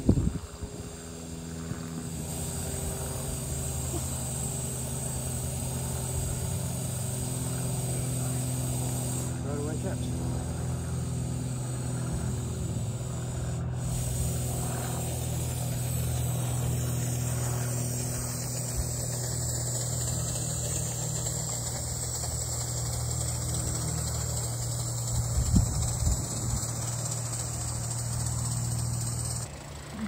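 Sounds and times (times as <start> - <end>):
low mechanical hum: 0.0 - 30.0
light hiss: 0.9 - 9.8, 10.8 - 29.5.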